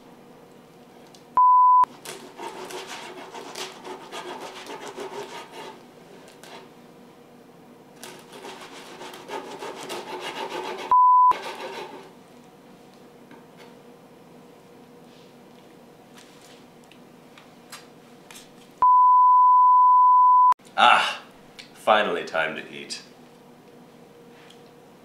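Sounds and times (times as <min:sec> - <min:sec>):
short electronic beeps: 0:01.4 - 0:01.9, 0:10.9 - 0:11.4, 0:18.8 - 0:20.6
knife sawing through bread: 0:02.0 - 0:05.8, 0:08.0 - 0:12.1.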